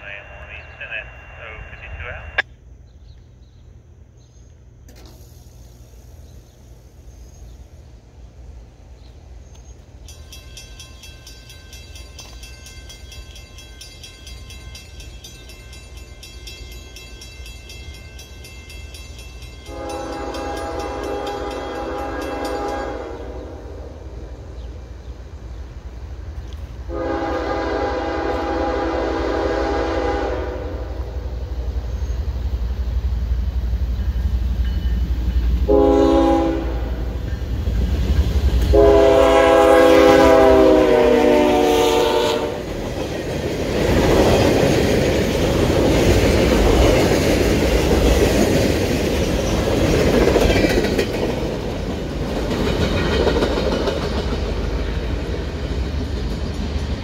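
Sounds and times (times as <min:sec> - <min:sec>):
locomotive air horn: 0:19.7 - 0:23.6, 0:26.9 - 0:31.0, 0:35.7 - 0:37.0, 0:38.7 - 0:42.6.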